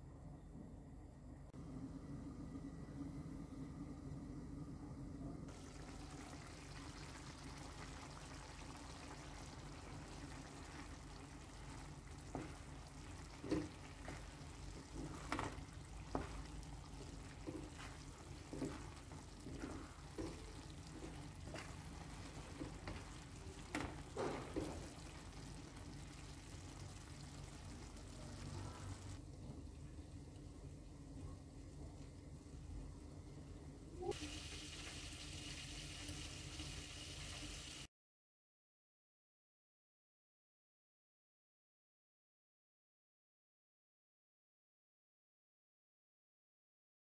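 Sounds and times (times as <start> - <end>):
wooden spoon scraping a pot: 12.4 - 25.2.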